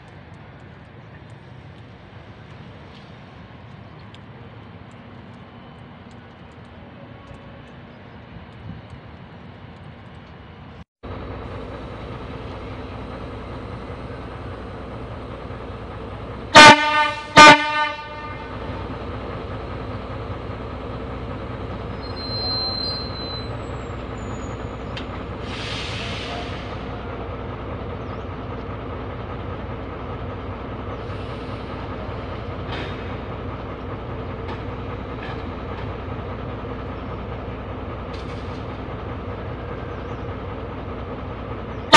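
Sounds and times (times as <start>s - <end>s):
diesel locomotive engine hum: 0.0s - 41.9s
locomotive horn blasts: 16.5s - 18.6s.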